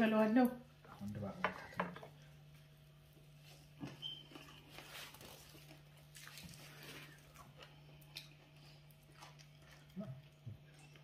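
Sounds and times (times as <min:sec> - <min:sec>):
low steady hum: 0:00.0 - 0:11.0
faint chewing: 0:03.1 - 0:11.0.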